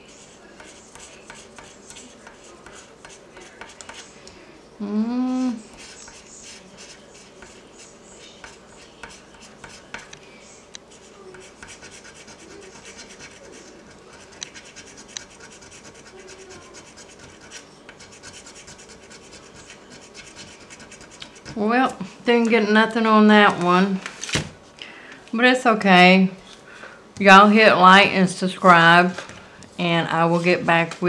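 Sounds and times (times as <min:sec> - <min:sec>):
person humming: 0:04.8 - 0:05.6.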